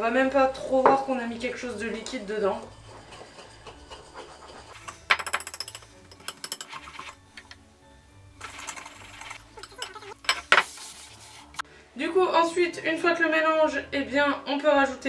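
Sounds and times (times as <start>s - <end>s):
whisk rattling against bowl: 2.1s - 7.2s, 8.4s - 10.6s.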